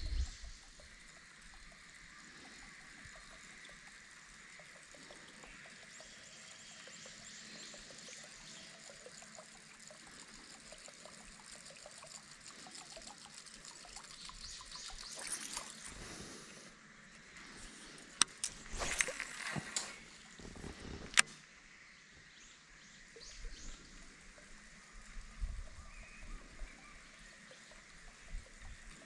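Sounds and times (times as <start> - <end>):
lure gurgling splashes on water: 2.6 - 16.4, 18.1 - 20.4.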